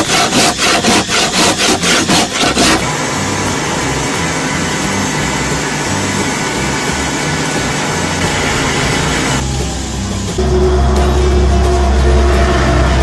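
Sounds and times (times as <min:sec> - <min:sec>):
rasp scraping wood: 0:00.0 - 0:02.9
forge air blower hum: 0:00.0 - 0:13.0.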